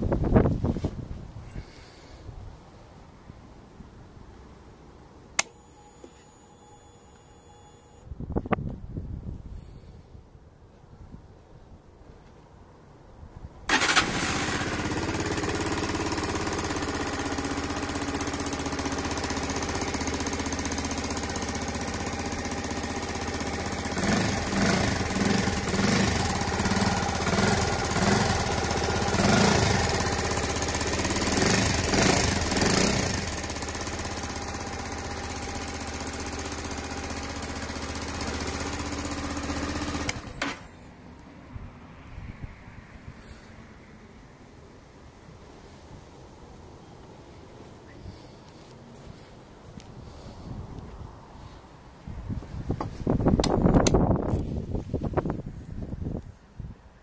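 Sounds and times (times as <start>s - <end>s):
electric starter cranking: 13.7s - 40.8s
motorcycle engine idling and revving: 13.7s - 40.9s, 48.1s - 56.3s.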